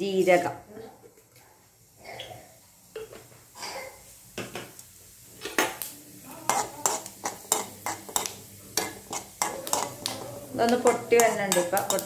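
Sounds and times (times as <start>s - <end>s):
seeds sizzling in oil: 1.8s - 12.0s
spoon scraping metal pan: 6.4s - 12.0s.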